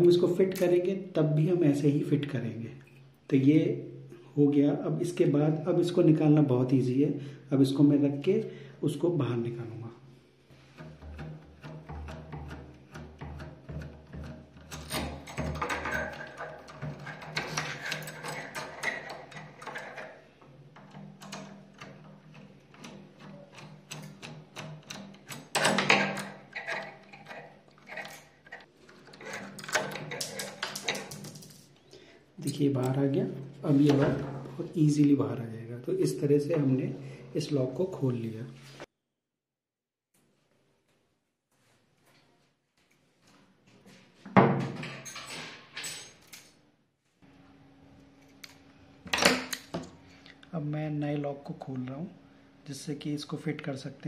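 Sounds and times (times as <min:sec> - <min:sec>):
rattling clatter: 0:10.8 - 0:24.3, 0:25.2 - 0:31.7
metal lock parts clicking and scraping: 0:14.6 - 0:31.8, 0:45.0 - 0:46.6
faint steady hum: 0:47.2 - 0:54.0.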